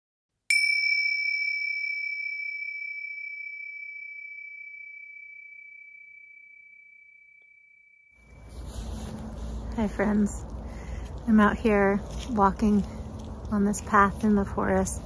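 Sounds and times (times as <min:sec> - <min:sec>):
bell ringing: 0:00.5 - 0:07.8.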